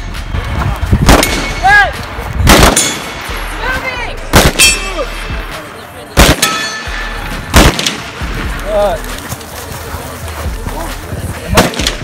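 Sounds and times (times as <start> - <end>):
rifle shots: 1.0 - 1.6, 2.5 - 3.2, 4.3 - 4.8, 6.2 - 6.7, 7.5 - 8.2.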